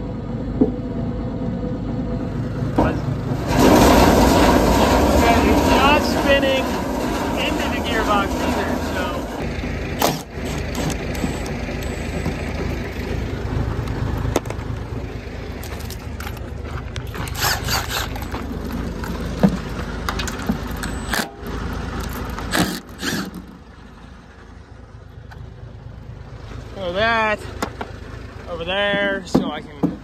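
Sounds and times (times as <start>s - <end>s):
low rumble: 0.8s - 10.0s
metal parts scraping and clunking: 3.4s - 13.0s, 15.5s - 23.6s.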